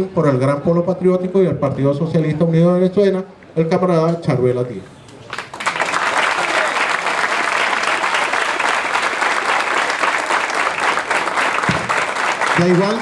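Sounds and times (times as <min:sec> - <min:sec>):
crowd applauding: 0:05.3 - 0:13.0.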